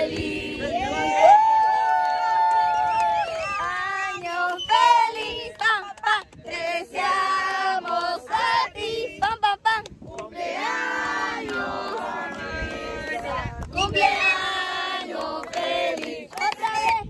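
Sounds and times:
family singing a celebration song: 0.0s - 17.0s.

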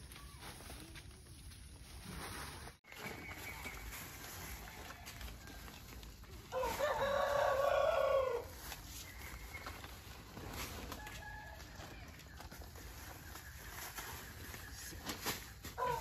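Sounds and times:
rooster crowing: 6.5s - 8.5s, 15.8s - 16.0s.

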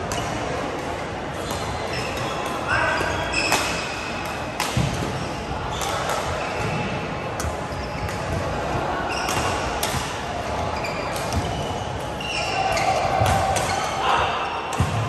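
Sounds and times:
sneaker squeaks on court: 7.7s - 8.2s, 10.8s - 14.0s.

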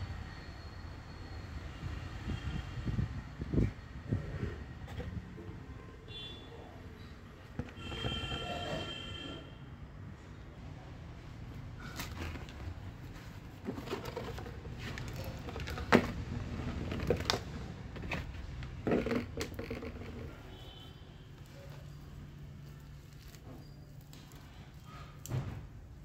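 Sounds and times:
knocks and rustles of plant roots: 11.8s - 20.5s.

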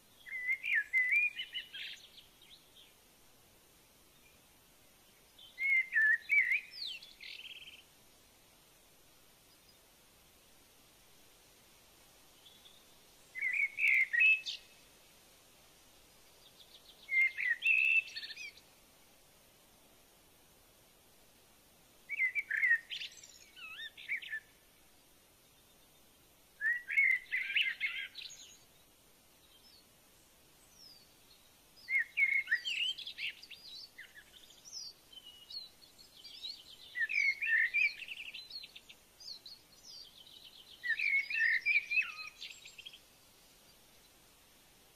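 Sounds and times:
bird twittering warble: 12.4s - 14.8s, 16.4s - 18.6s, 22.1s - 24.6s, 26.6s - 28.7s, 31.8s - 43.0s.

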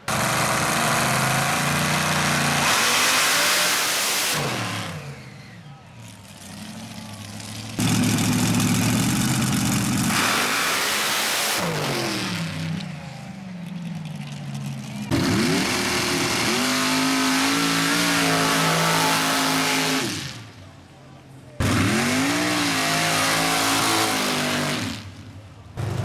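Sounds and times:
race engine revving: 0.1s - 5.6s, 6.4s - 12.8s, 15.1s - 20.6s, 21.6s - 25.2s.

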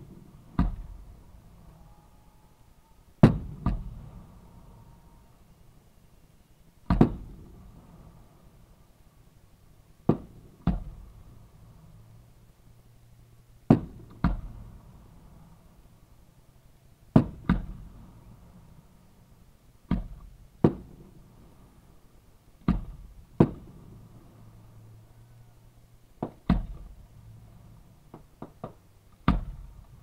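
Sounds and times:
fireworks bangs: 3.2s - 4.4s, 6.9s - 8.0s, 19.9s - 21.2s, 22.6s - 24.0s.

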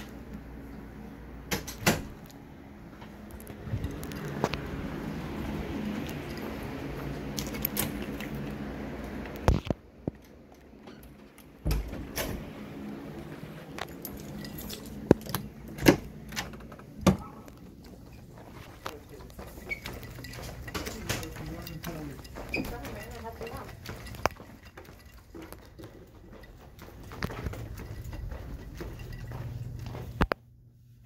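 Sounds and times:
steady background noise: 0.0s - 30.5s
sharp clicks and rattles: 18.5s - 30.4s.

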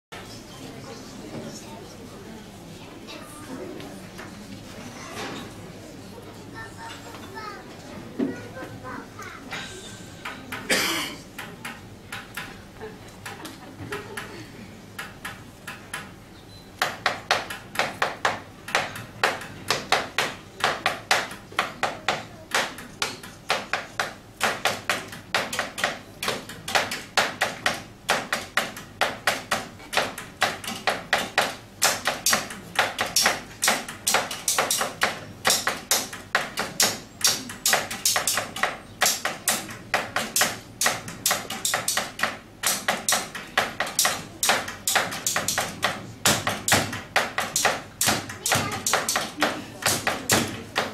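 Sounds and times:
taps and knocks on desks: 16.8s - 50.9s.

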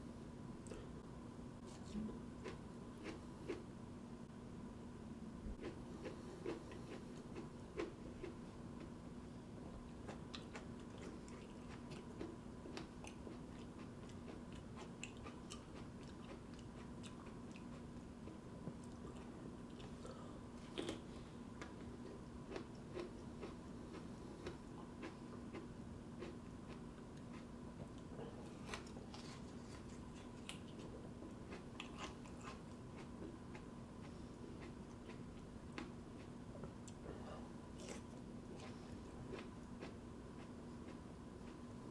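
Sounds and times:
steady low hum: 0.0s - 41.9s
crunchy chewing: 9.8s - 37.1s.

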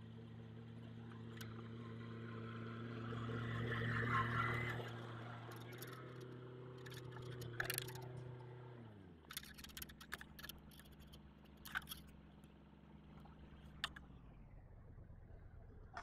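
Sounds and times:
distant tractor engine hum: 0.0s - 16.0s
tractor engine running: 0.0s - 16.0s
sharp clicks: 5.5s - 8.2s, 9.3s - 12.1s.

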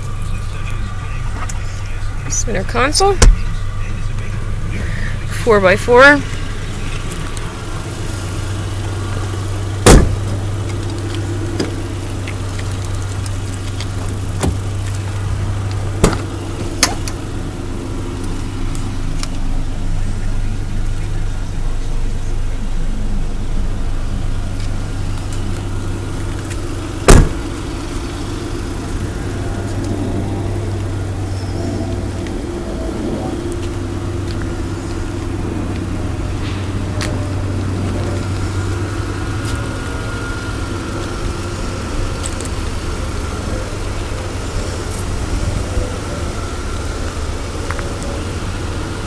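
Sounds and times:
car engine idling: 0.0s - 49.0s
car doors slamming: 3.2s - 3.6s, 8.4s - 12.5s, 13.8s - 17.3s, 24.9s - 29.9s.

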